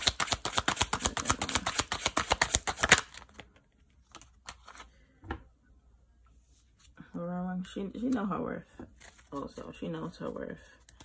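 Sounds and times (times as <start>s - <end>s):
cards shuffling: 0.0s - 3.5s, 9.0s - 9.3s.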